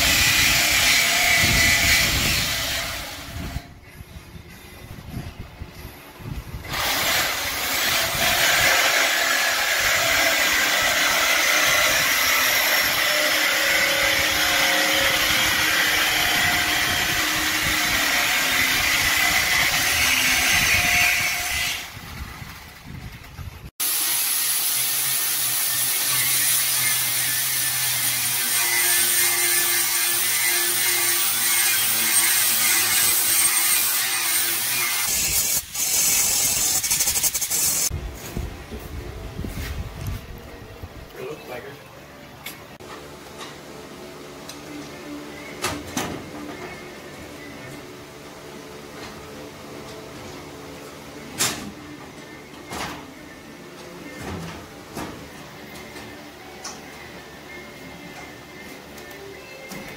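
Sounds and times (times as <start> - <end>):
angle grinder cutting steel: 0.0 - 3.6, 6.6 - 22.0, 23.8 - 37.9.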